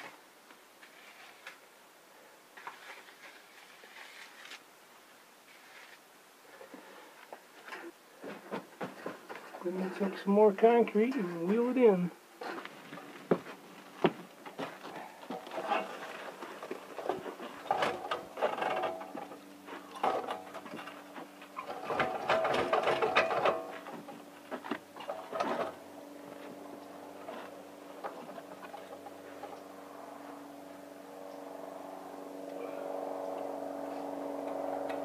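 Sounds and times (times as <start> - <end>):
cement mixer rattling and clanking: 14.6 - 25.8
mixer motor hum: 25.0 - 35.0.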